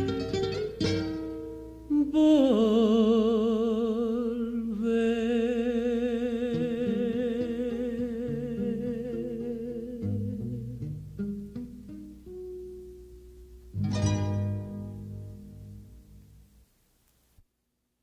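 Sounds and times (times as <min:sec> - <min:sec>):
acoustic guitar picking: 0:00.0 - 0:02.8, 0:04.8 - 0:16.6
man singing with vibrato: 0:01.9 - 0:11.0.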